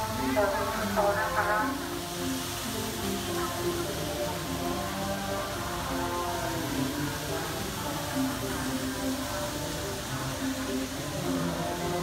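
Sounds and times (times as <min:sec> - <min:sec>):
music with slow held notes: 0:00.0 - 0:12.0
steady hiss: 0:00.0 - 0:12.0.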